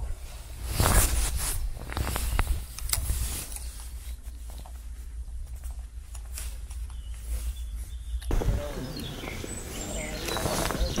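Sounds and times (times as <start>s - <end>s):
low microphone rumble: 7.8s - 11.0s.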